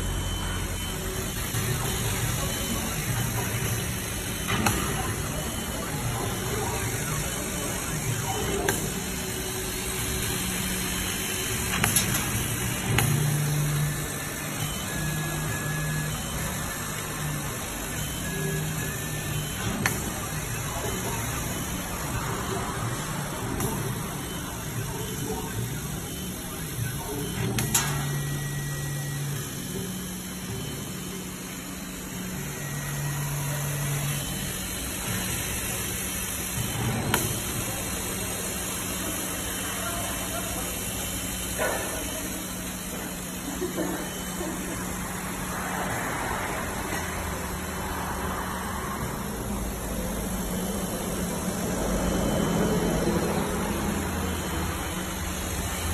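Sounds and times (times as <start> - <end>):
laser cutter hiss: 0.0 - 55.9
motor hum of moving head: 0.0 - 55.9.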